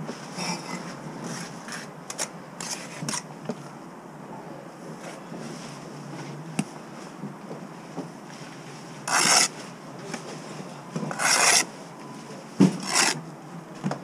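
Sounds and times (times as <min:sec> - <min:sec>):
trowel scraping brickwork: 0:00.4 - 0:03.2, 0:09.0 - 0:09.6, 0:11.1 - 0:11.7, 0:12.8 - 0:13.2.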